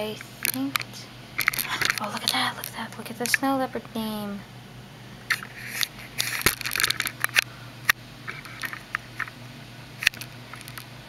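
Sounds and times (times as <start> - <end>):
camera handling crackles and clicks: 5.3 - 7.5, 10.0 - 10.9.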